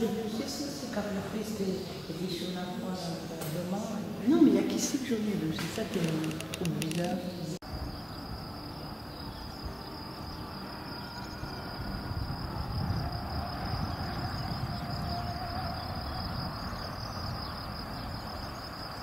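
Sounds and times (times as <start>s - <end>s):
crickets chirping: 5.4s - 19.0s.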